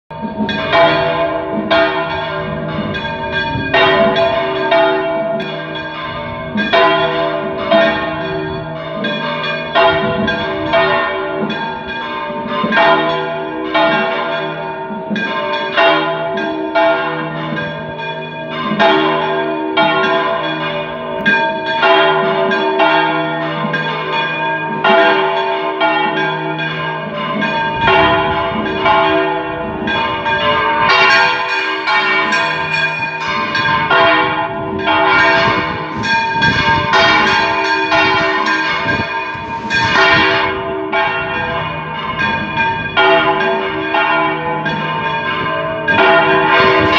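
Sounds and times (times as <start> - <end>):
church bells pealing: 0.1 - 46.9.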